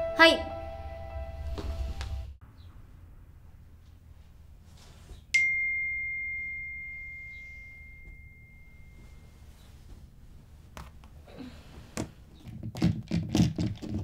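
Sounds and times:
high bell-like chime: 5.4s - 9.6s.

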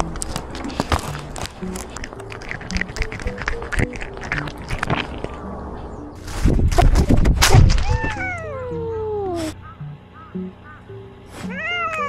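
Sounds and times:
dry food crunching: 0.0s - 5.5s
thumping and rustling: 6.2s - 8.2s
cat meowing: 7.8s - 9.6s, 11.4s - 12.0s.

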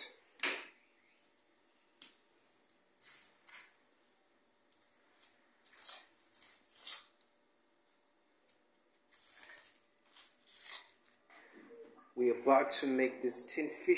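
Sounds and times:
onion skin crackling and tearing: 5.7s - 7.2s.

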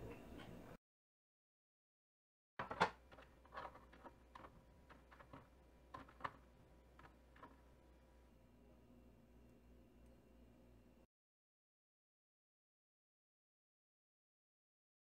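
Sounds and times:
kitchenware clicking and knocking: 2.6s - 8.0s.

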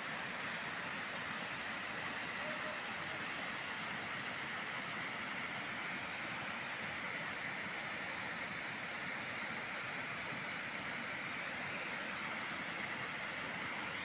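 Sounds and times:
water rushing over rocks: 0.0s - 14.0s.

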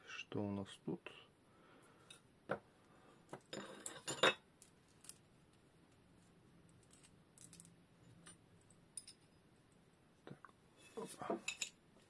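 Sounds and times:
metal parts clinking on workbench: 3.4s - 5.2s, 6.8s - 9.3s, 11.4s - 11.8s.

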